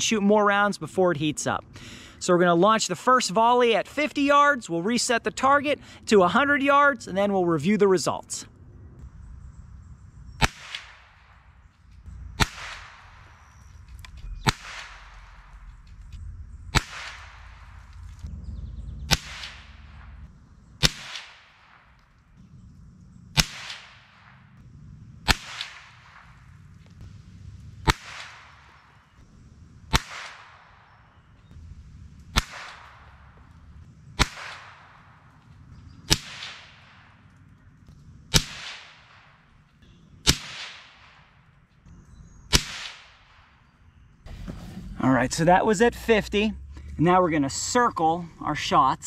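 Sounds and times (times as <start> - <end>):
rifle shots: 10.4 - 18.3, 19.0 - 22.2, 23.3 - 24.6, 25.2 - 26.7, 27.8 - 29.2, 29.8 - 37.6, 38.3 - 41.5, 42.5 - 43.6.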